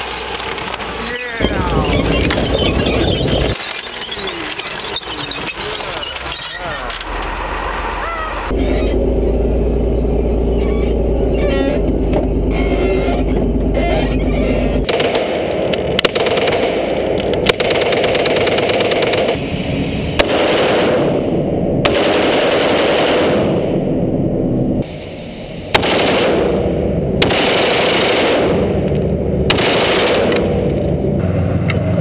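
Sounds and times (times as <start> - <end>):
tank engine rumbling: 0.0 - 32.0
rapid automatic gunfire: 14.8 - 19.4, 20.2 - 21.2, 21.9 - 23.7, 25.7 - 28.9, 29.5 - 30.7.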